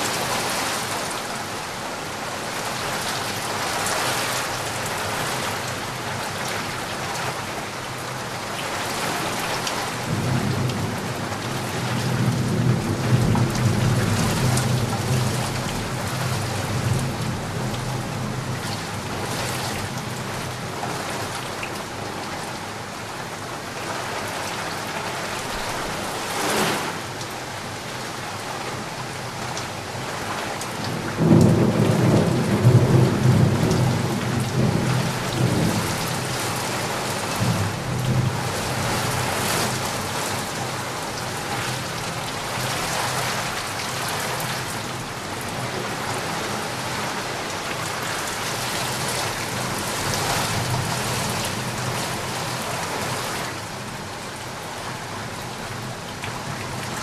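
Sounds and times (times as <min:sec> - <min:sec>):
steady rain: 0:00.0 - 0:57.0.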